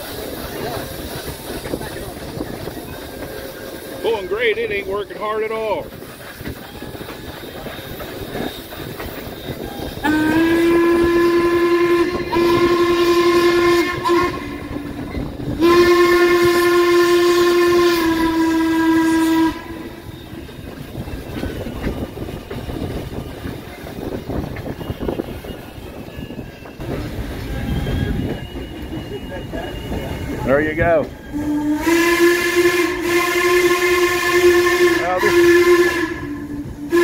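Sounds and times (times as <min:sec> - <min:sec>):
train clattering on rails: 0:00.0 - 0:37.0
steam whistle blasts: 0:09.6 - 0:20.4, 0:31.2 - 0:37.0.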